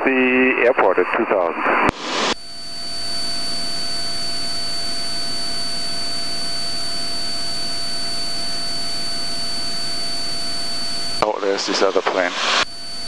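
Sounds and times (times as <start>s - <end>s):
aircraft engine and propeller hiss: 1.9s - 2.5s, 10.8s - 13.0s.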